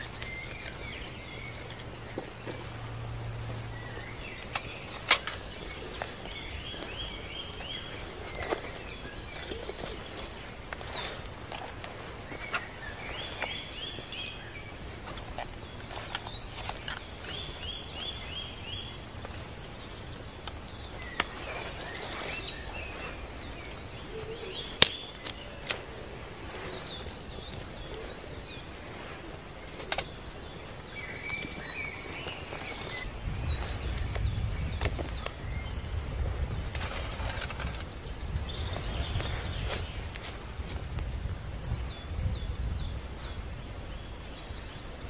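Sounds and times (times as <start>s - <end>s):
wood fire crackling: 0.0s - 41.2s
songbirds singing: 0.0s - 45.0s.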